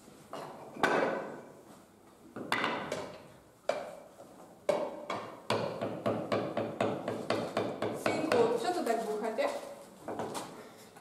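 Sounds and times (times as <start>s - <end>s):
hammer striking chisel into wood: 4.7s - 8.5s.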